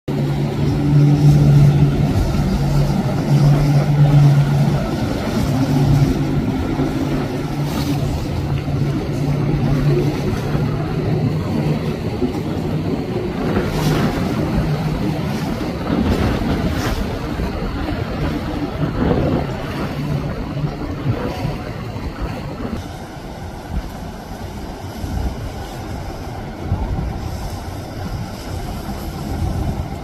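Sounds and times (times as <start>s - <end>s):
wind: 0.0s - 30.0s
boat engines droning: 0.1s - 30.0s
wake water rushing: 0.1s - 30.0s.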